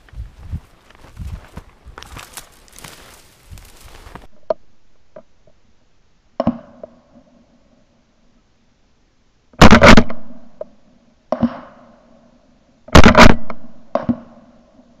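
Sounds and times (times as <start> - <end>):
loud gunshots: 9.6 - 10.2, 13.0 - 13.5
faint sharp gunshots: 9.6 - 10.4, 13.0 - 14.3.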